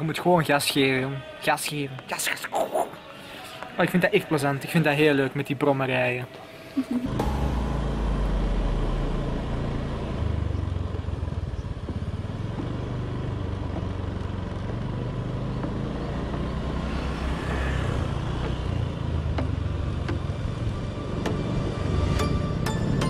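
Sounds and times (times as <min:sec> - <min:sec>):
scooter engine running: 0:07.0 - 0:20.6
passing scooter: 0:07.2 - 0:23.0.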